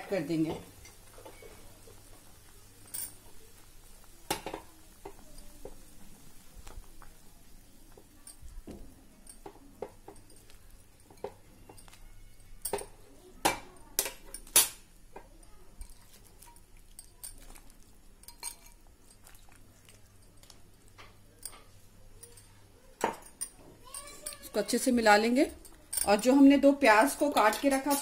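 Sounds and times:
knocks and clinks against pot: 8.0s - 17.6s, 20.2s - 24.4s.

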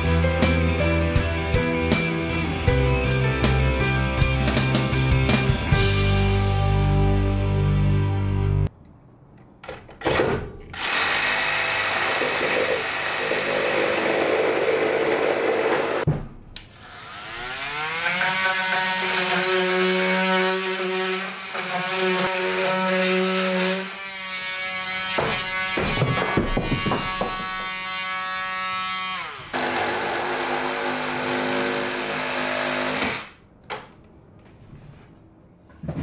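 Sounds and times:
cordless drill boring into wood: 10.8s - 16.0s, 29.5s - 33.3s.

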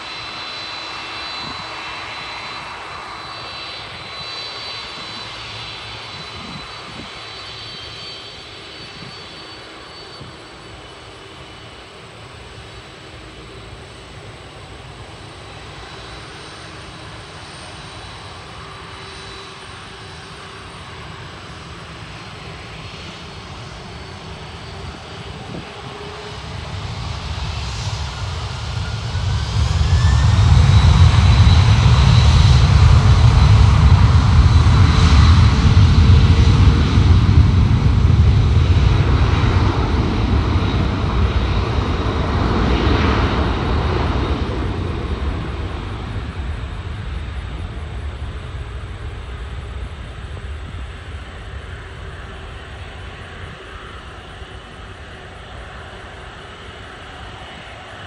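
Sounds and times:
jet engines spooling up: 0.0s - 58.0s.

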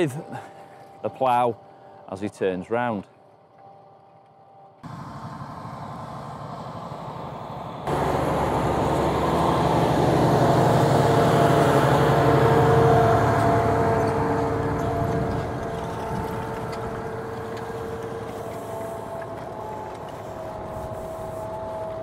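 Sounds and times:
tractor diesel engine under load: 4.8s - 22.0s.

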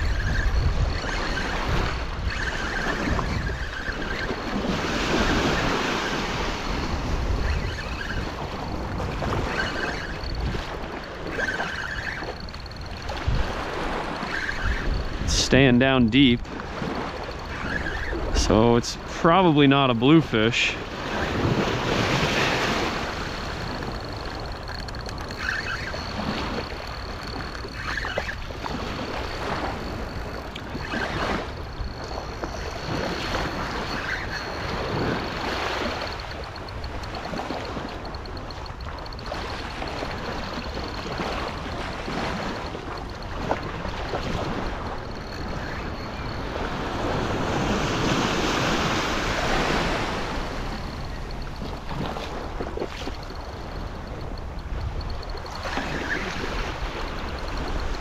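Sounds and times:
wind rumble on microphone: 0.0s - 19.6s.

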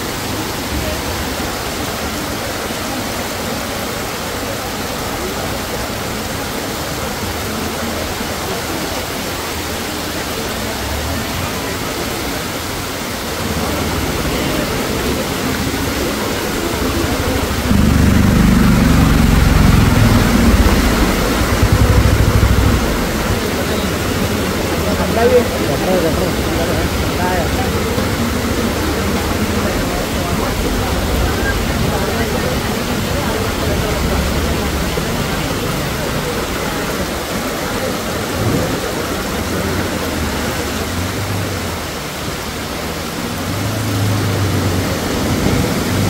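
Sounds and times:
floodwater rushing: 0.0s - 46.0s
heavy low rumble: 13.4s - 37.4s.

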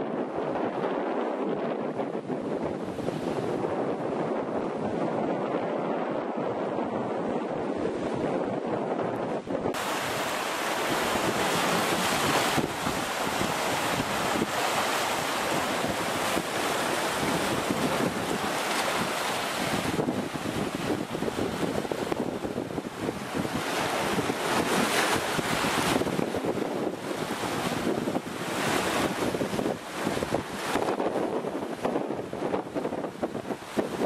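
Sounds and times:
wind buffeting microphone: 0.0s - 34.0s
surf breaking over rocks: 9.6s - 32.9s.

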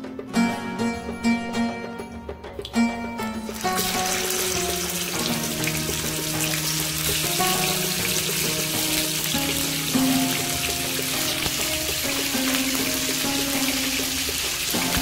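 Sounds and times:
plucked-string background music: 0.0s - 15.0s
fish sizzling in hot oil: 3.5s - 15.0s.

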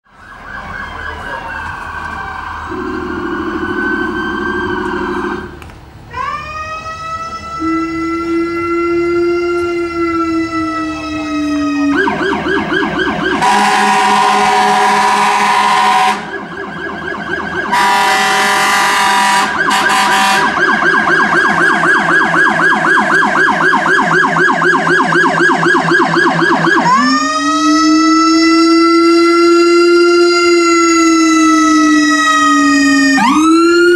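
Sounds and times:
rapidly pulsing siren: 0.0s - 5.6s, 6.2s - 33.9s
emergency vehicle sirens wavering: 0.0s - 33.9s
air horn blasts: 13.4s - 16.4s, 17.7s - 20.6s.

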